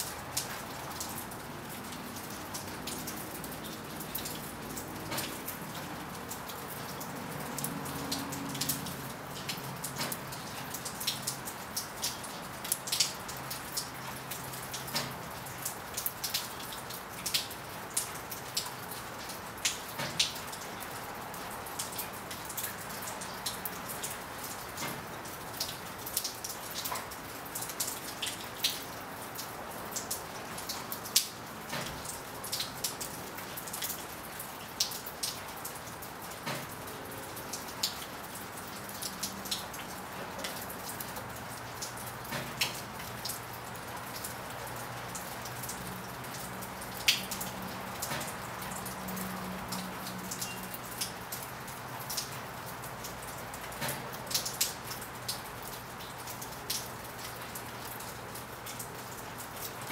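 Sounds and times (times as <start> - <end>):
raindrops tapping a surface: 0.0 - 59.9
steady rain hiss: 0.0 - 59.9.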